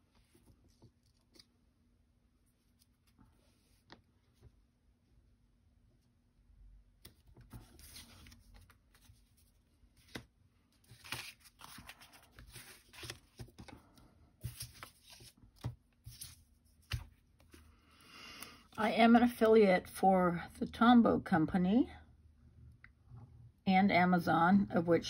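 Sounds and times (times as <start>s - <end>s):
paper rustling and sliding: 7.4s - 17.7s.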